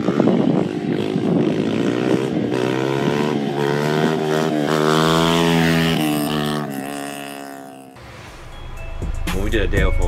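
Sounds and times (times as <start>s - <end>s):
dirt bike engine revving: 0.0s - 8.0s.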